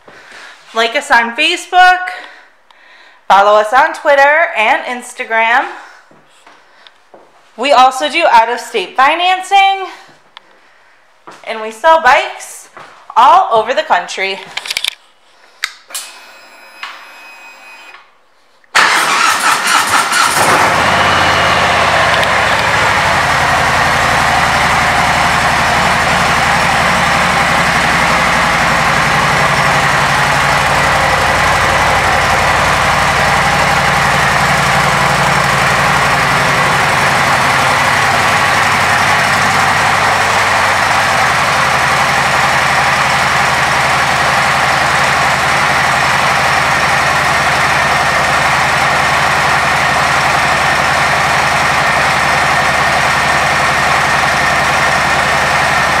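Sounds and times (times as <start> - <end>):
motorcycle engine idling: 20.4 - 56.0.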